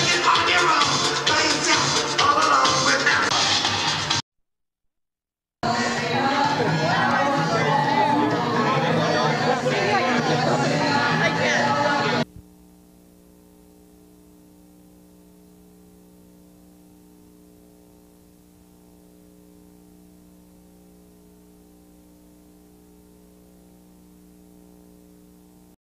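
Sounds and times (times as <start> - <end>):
steady electrical hum: 9.9 - 25.8
faint tape hiss: 12.2 - 25.8.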